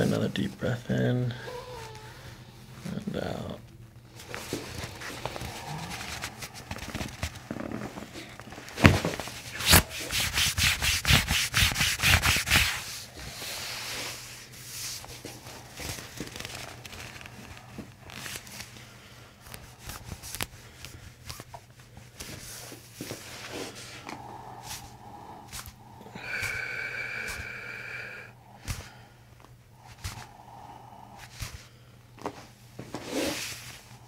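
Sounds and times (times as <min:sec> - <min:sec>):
hands rubbing on shirt: 0:09.3 - 0:13.1.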